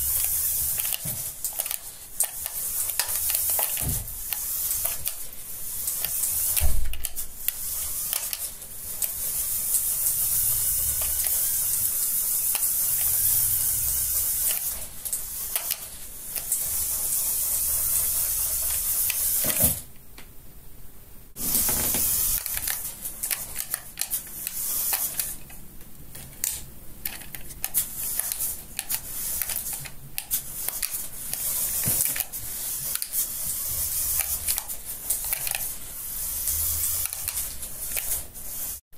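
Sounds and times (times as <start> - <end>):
toy car motor whirring: 0.0 - 19.8, 21.4 - 25.4, 27.1 - 38.8.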